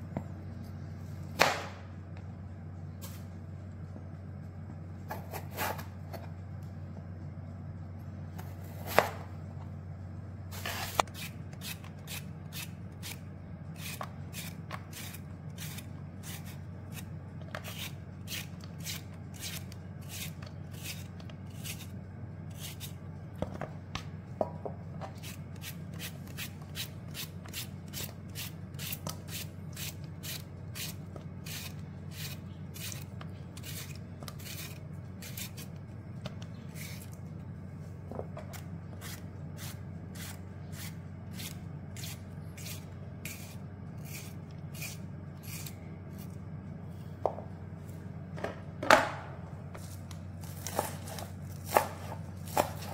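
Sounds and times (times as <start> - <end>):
low hum: 0.0 - 52.9
knife slicing tomatoes: 8.4 - 9.2, 10.6 - 21.9, 25.1 - 35.8, 50.4 - 52.9.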